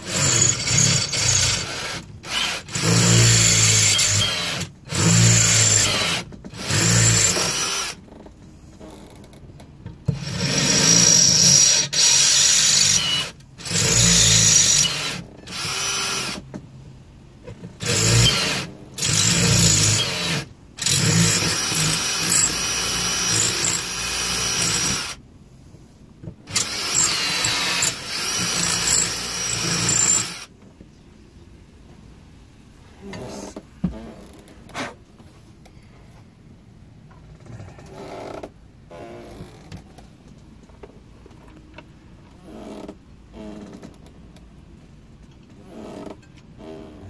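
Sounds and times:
cordless drill boring through metal: 0:00.0 - 0:08.0, 0:10.1 - 0:16.4, 0:17.8 - 0:25.2, 0:26.5 - 0:30.5.

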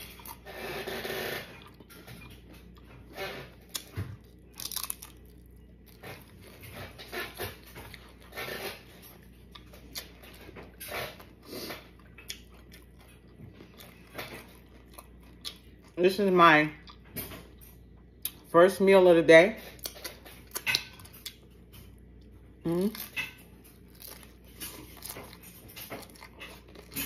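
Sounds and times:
person crunching taco: 0:00.0 - 0:10.2, 0:10.9 - 0:15.9, 0:22.2 - 0:27.0.

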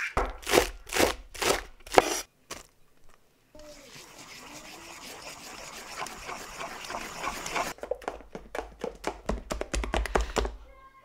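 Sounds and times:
spoon stirring batter in metal bowl: 0:03.6 - 0:07.8.

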